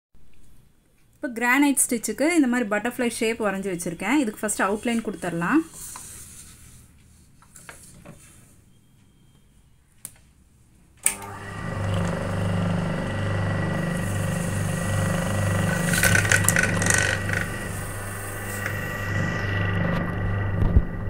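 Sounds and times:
sewing machine running: 11.1 - 21.0.

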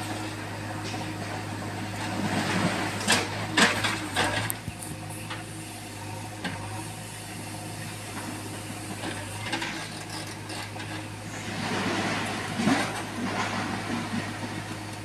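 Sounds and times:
diesel engine running: 0.0 - 15.0
bucket clanking and scraping: 2.0 - 4.6, 9.4 - 14.7.

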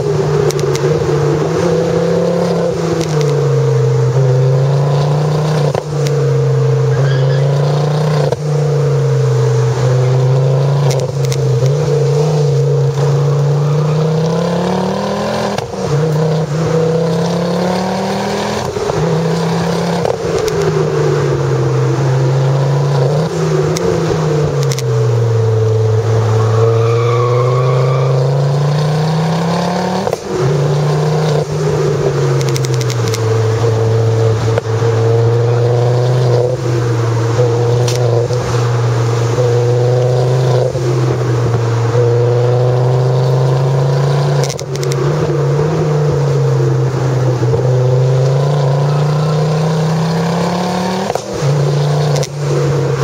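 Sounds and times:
car engine revving with upshifts: 0.0 - 53.0.

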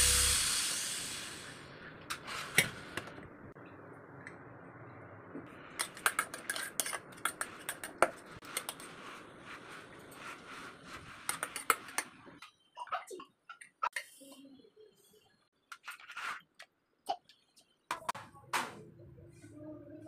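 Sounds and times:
pressure cooker steam hissing: 0.0 - 1.7
spoon tapping and scraping pot: 5.8 - 8.9, 11.2 - 12.6.

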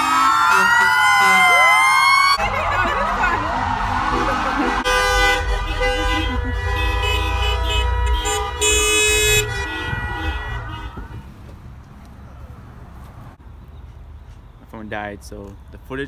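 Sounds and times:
car horns honking: 0.0 - 1.6, 2.2 - 11.5.

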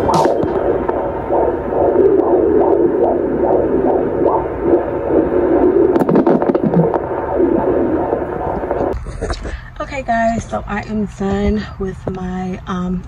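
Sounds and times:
fetal heartbeat pulses on doppler: 0.0 - 9.0
steady hum: 0.0 - 13.0.

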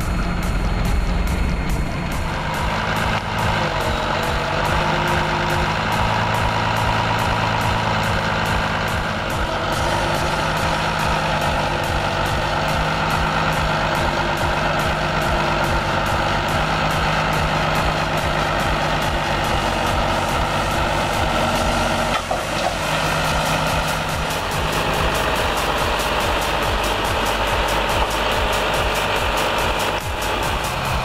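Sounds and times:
regular ticking: 0.0 - 31.0
tractor engine running: 0.0 - 31.0
hydraulics folding planter: 17.1 - 30.1.

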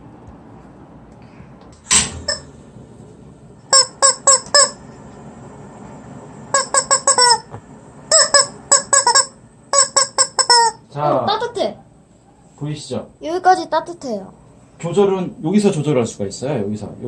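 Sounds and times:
gas heater ignition clicks: 1.1 - 2.5
rubber chicken squeak toy: 3.7 - 4.8, 6.6 - 7.5, 8.1 - 10.8.

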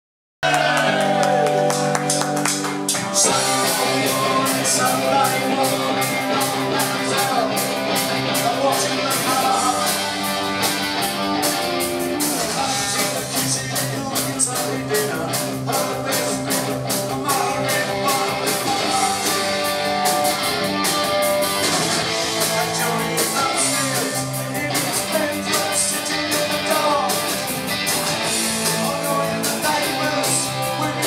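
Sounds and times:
person singing and shouting: 0.4 - 1.7, 3.0 - 10.2, 12.2 - 19.8, 22.3 - 27.4, 28.4 - 31.0
drums: 0.4 - 31.0
punk rock band playing live: 0.4 - 31.0.

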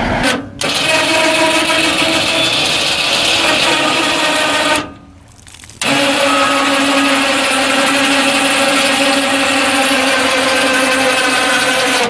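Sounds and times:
electric motor whining hum: 5.8 - 12.0.

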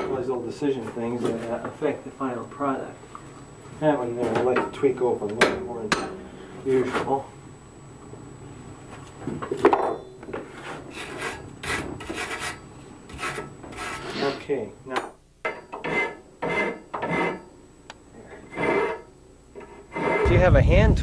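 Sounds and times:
file rasping on steel: 10.6 - 14.4, 15.8 - 17.5, 18.4 - 20.3.

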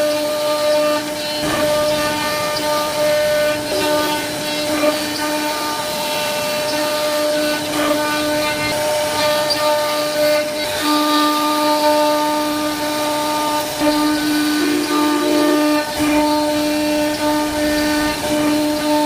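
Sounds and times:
router spindle whining: 0.0 - 19.0.

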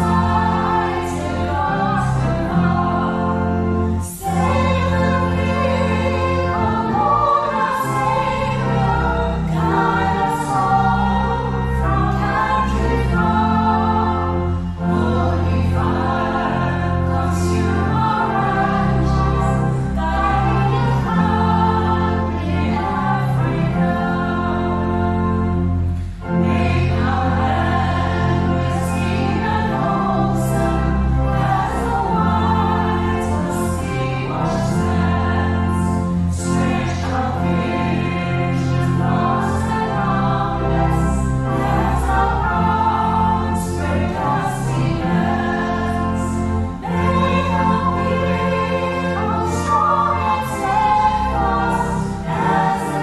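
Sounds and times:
choir singing a hymn: 0.0 - 53.0.

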